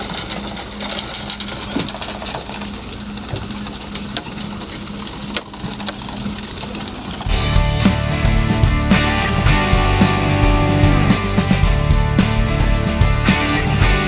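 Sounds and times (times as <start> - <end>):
water along the hull: 0.0 - 7.5
gear clicking and knocking: 0.0 - 13.7
boat engine hum: 0.0 - 14.0.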